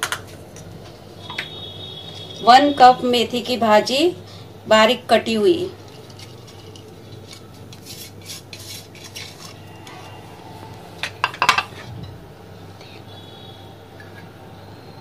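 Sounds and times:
steel pot clinking: 11.0s - 11.8s.

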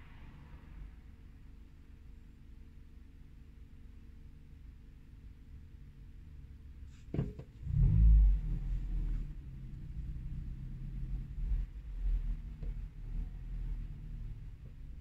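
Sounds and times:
vehicle rumble inside car: 4.2s - 15.0s.

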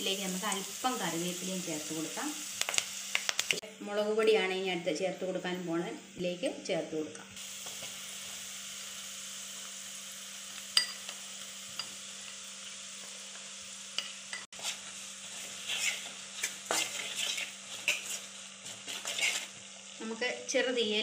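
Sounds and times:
spices sizzling in hot oil: 0.0s - 21.0s
spoon scraping against pan: 13.9s - 19.9s.

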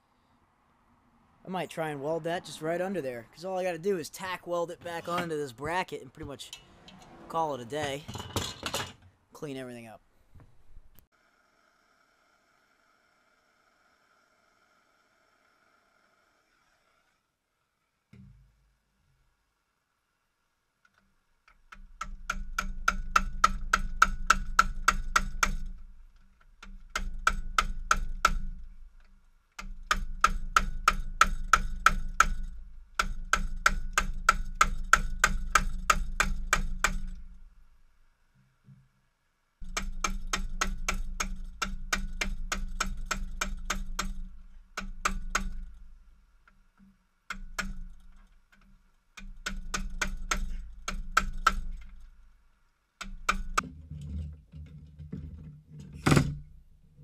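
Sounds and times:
hammer striking metal: 29.6s - 37.2s.

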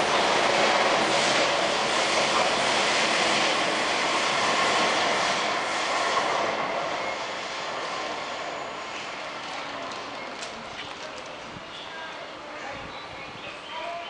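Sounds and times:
train rushing past: 0.0s - 10.3s.

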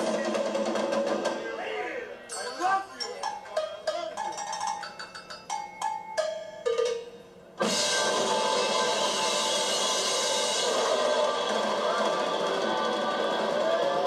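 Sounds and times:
drum kit solo: 0.0s - 1.4s, 6.2s - 14.0s.

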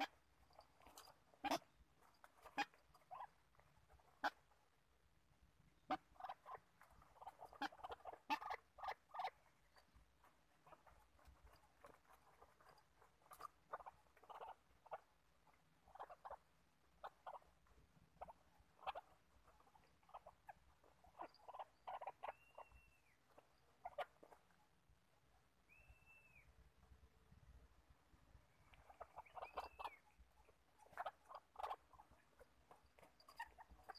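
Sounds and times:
birds ticking and clucking: 0.0s - 5.0s, 5.6s - 26.4s, 28.3s - 33.9s
high whistled bird notes: 22.3s - 23.1s, 25.7s - 26.5s.

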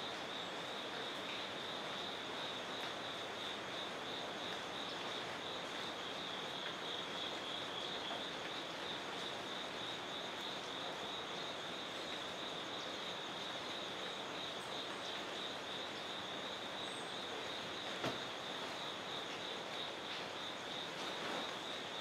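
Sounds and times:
outdoor background hiss: 0.0s - 22.0s.

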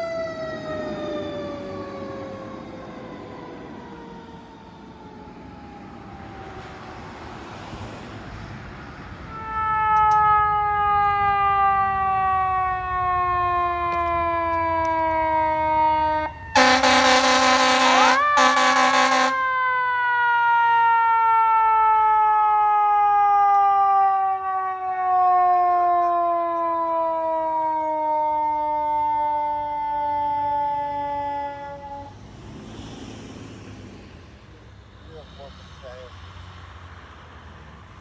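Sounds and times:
fire engine siren winding down: 0.0s - 38.0s
air horn blasts: 16.6s - 19.4s.

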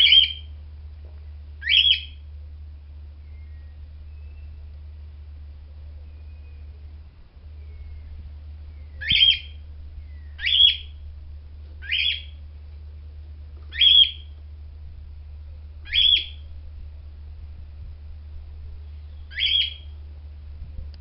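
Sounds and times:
bird calling: 0.0s - 0.6s, 1.6s - 2.3s, 3.2s - 4.7s, 7.5s - 11.1s, 11.8s - 12.5s, 13.6s - 14.4s, 15.8s - 16.6s, 18.8s - 20.0s
steady low hum: 0.0s - 21.0s.

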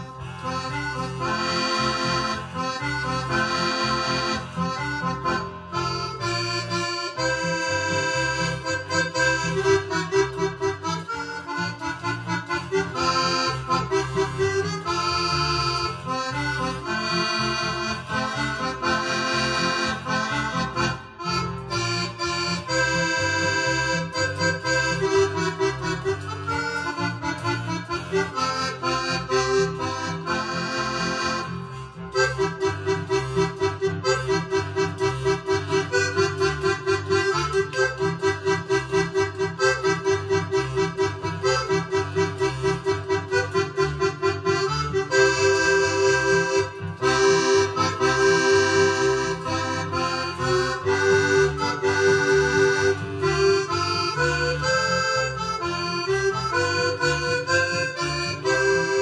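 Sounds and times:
accordion playing lively tune: 0.0s - 59.0s.

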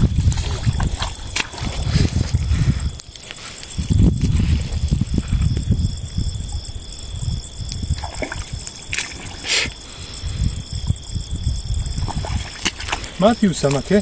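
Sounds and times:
high-pitched insect trill: 0.0s - 14.0s
water trickling and sloshing: 0.0s - 14.0s
short hiss: 9.4s - 9.8s.

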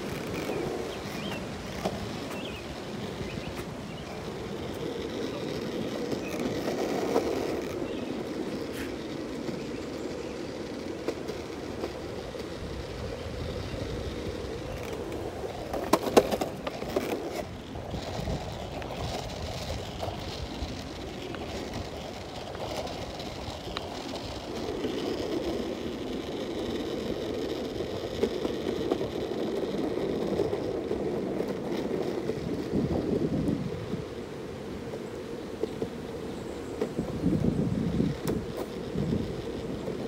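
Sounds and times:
skateboard wheels rolling on asphalt: 0.0s - 40.0s.

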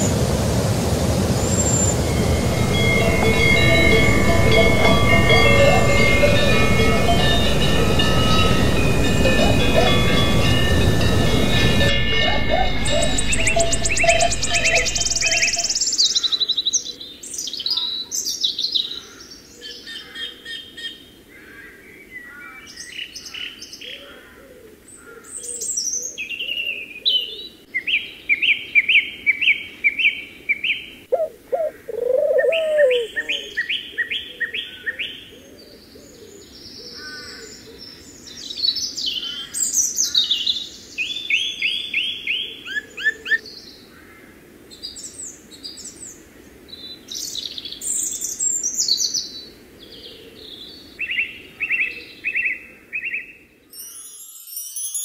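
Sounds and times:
songbirds chirping and trilling: 1.4s - 31.0s.

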